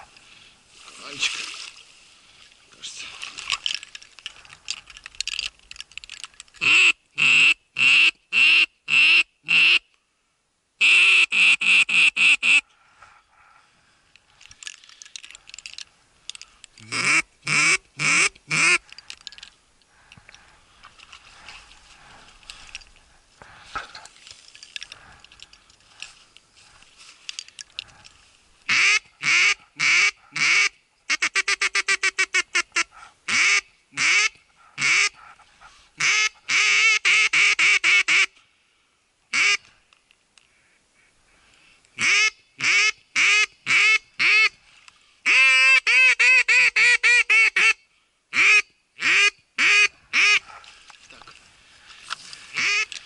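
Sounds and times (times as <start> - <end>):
duck call quacks: 6.6 - 9.8, 10.8 - 12.6, 16.8 - 18.8, 28.7 - 35.2, 36.0 - 38.4, 39.3 - 39.7, 42.0 - 44.6, 45.2 - 50.5, 52.5 - 52.9.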